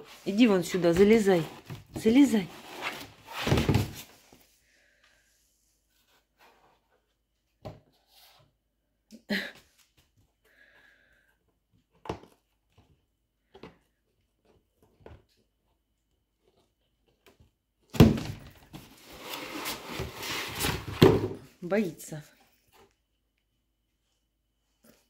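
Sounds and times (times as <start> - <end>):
cardboard rustling and scraping: 0.0 - 4.5, 18.1 - 21.5.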